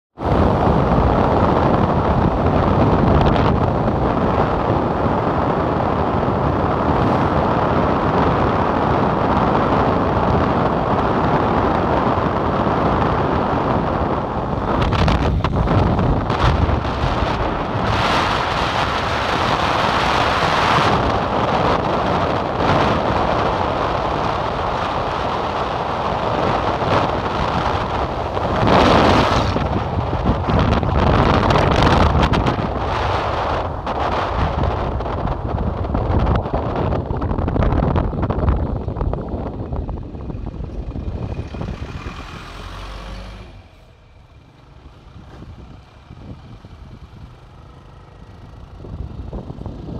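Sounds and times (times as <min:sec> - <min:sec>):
motorbike and road rumble: 0:00.1 - 0:49.9
wind buffeting microphone: 0:00.2 - 0:49.9
truck passing: 0:38.2 - 0:49.9.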